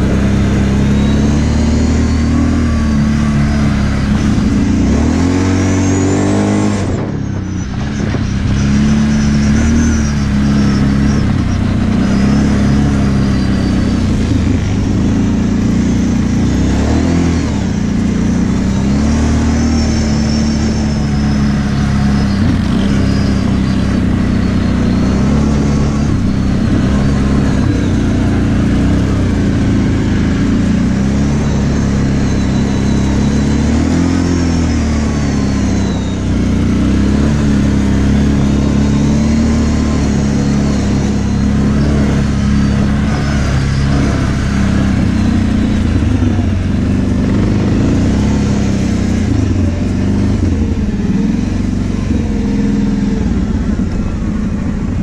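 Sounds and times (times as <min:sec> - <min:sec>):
atv engine running under throttle: 0:00.0 - 0:55.0.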